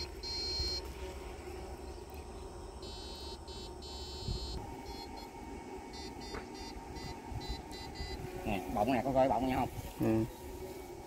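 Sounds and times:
buzzing insect calls: 0:00.0 - 0:11.0.

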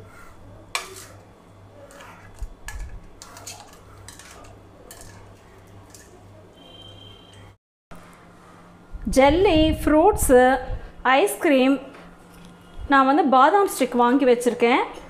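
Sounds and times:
plastic spoon clinking on steel plates: 0:01.9 - 0:06.2.

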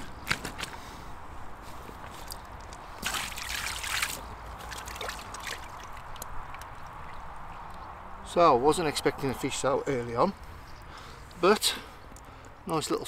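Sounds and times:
water dripping: 0:02.6 - 0:08.0
fish splashing in water: 0:03.0 - 0:07.7
small taps and clicks: 0:06.1 - 0:07.8.

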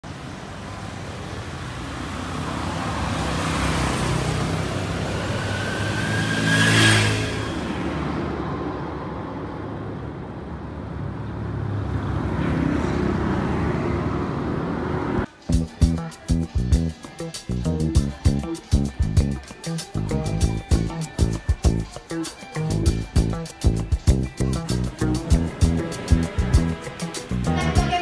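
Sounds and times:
cars and motorcycles driving by: 0:00.0 - 0:19.6, 0:20.2 - 0:28.0
road noise: 0:00.0 - 0:28.0
vehicle passing with rising whine: 0:02.8 - 0:15.4.

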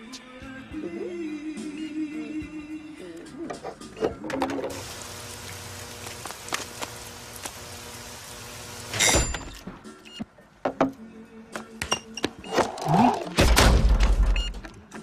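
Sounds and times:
rain-like hiss: 0:04.7 - 0:09.1.

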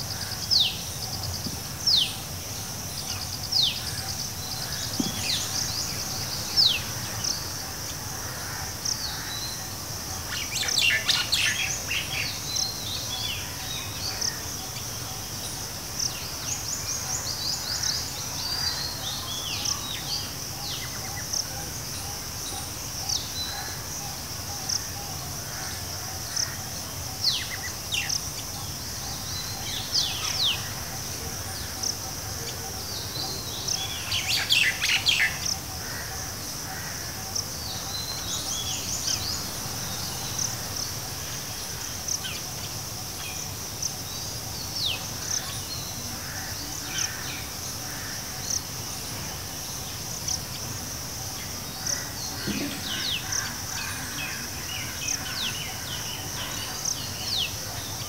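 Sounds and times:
high insect drone: 0:00.0 - 0:58.0.

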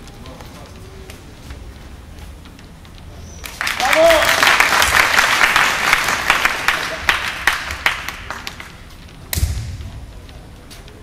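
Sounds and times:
audience applause: 0:03.5 - 0:08.8
sharp smack with low thud: 0:09.3 - 0:09.9.

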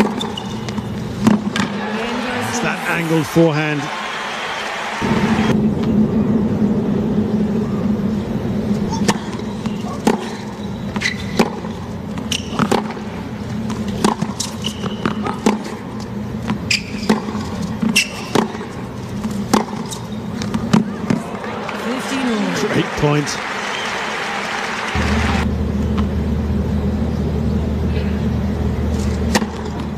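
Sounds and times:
racket hitting tennis ball: 0:00.0 - 0:02.4, 0:08.8 - 0:15.8, 0:16.5 - 0:21.5, 0:29.2 - 0:29.9
tennis ball bouncing: 0:00.0 - 0:02.4, 0:08.8 - 0:21.5
murmur of stadium crowd: 0:00.0 - 0:11.0, 0:19.6 - 0:25.8.

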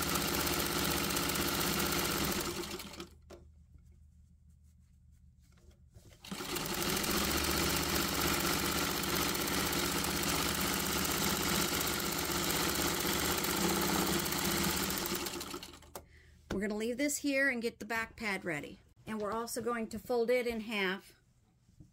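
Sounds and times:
sewing machine stitching: 0:00.0 - 0:03.2, 0:06.2 - 0:16.0.

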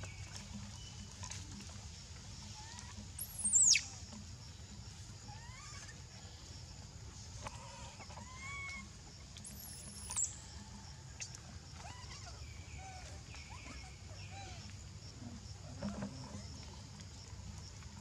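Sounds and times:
monkeys squealing: 0:02.6 - 0:04.0, 0:05.2 - 0:06.1, 0:08.0 - 0:08.9, 0:11.8 - 0:14.7
monkey chirps: 0:02.7 - 0:04.1, 0:05.3 - 0:06.0, 0:08.2 - 0:10.4.

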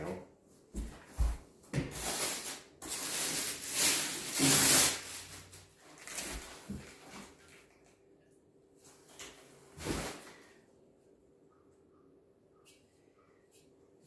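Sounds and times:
plastic wrapping rustling: 0:01.9 - 0:07.5.

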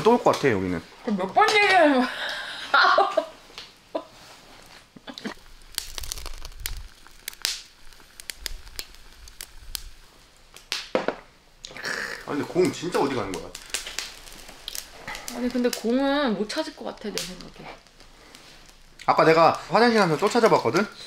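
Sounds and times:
oysters crackling on a grill: 0:00.0 - 0:21.0
woman laughing: 0:02.6 - 0:03.4.

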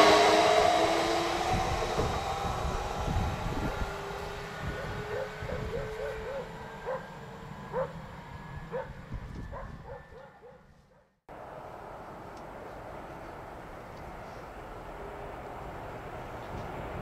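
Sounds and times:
electric train rumbling: 0:00.0 - 0:10.5, 0:11.3 - 0:17.0
dog barking: 0:04.7 - 0:08.0, 0:08.7 - 0:11.1.

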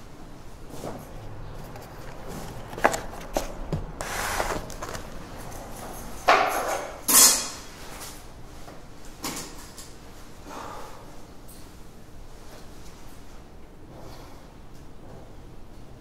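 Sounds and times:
objects scraping on wood: 0:01.6 - 0:05.2.

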